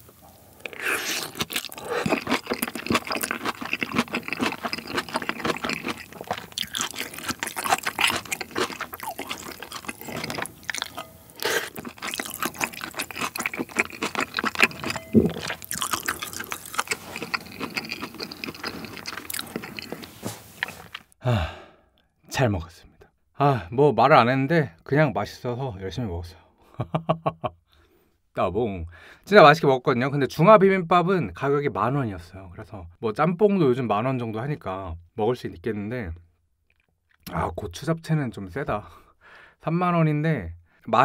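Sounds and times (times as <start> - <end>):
wet chewing and lip smacking: 0.6 - 21.2.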